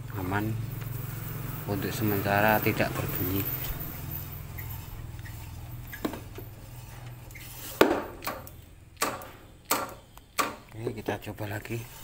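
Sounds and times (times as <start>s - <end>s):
motorcycle wheel spinning hum: 0.0s - 10.1s
sharp metallic clicks: 8.2s - 10.9s.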